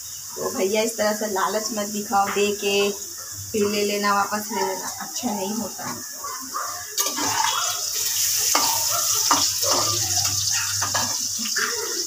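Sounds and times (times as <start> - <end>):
tap water running into steel sink: 7.0 - 12.0.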